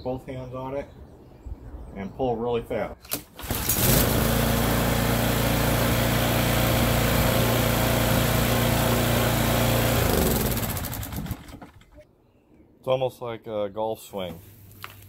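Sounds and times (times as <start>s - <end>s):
lawn mower engine running: 3.4s - 12.0s.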